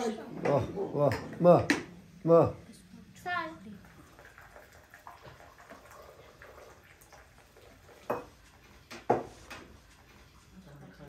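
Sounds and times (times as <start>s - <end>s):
glasses clinking on wooden table: 8.1s - 8.4s.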